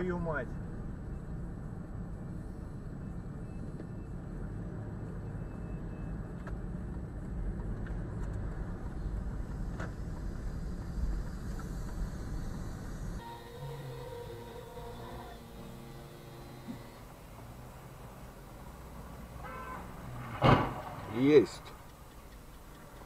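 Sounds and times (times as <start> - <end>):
car road and engine rumble: 0.0 - 23.0
faint ticks: 21.6 - 23.0.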